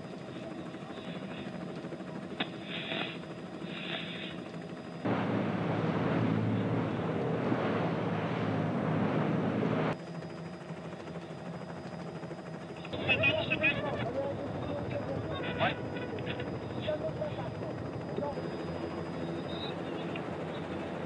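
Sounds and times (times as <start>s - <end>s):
engine hum: 2.1s - 11.0s.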